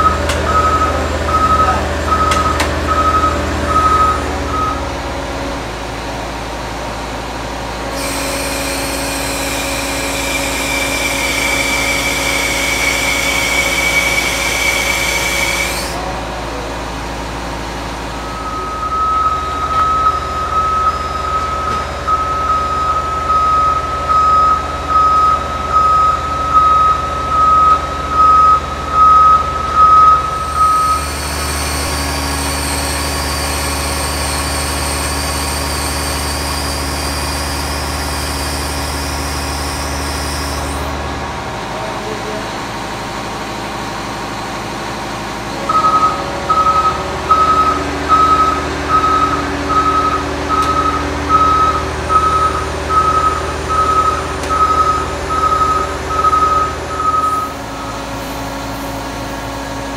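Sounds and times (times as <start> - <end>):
backup alarm beeping: 0.0 - 5.0, 18.2 - 32.0, 45.7 - 58.2
heavy machine drone with whine: 0.0 - 59.9.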